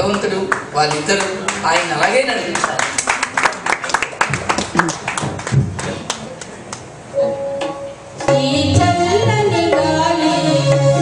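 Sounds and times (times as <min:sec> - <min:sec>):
scattered claps: 0:02.5 - 0:06.9
electronic keyboard note: 0:07.1 - 0:09.5
keyboard and tabla music: 0:07.2 - 0:11.0.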